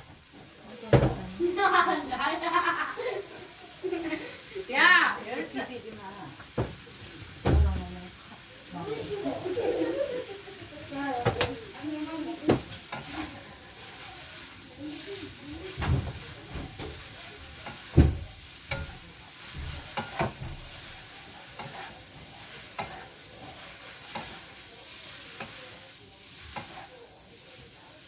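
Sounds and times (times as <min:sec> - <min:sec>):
food sizzling in a pan: 0:00.0 - 0:28.0
utensil clanking against pan: 0:12.4 - 0:13.4, 0:15.6 - 0:26.9.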